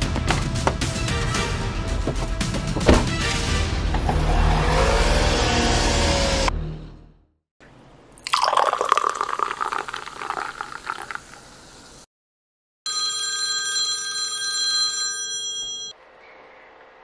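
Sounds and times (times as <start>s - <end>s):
drink fizzing: 8.1s - 12.0s
drink poured into glass: 8.2s - 11.5s
phone ringing: 12.9s - 16.0s.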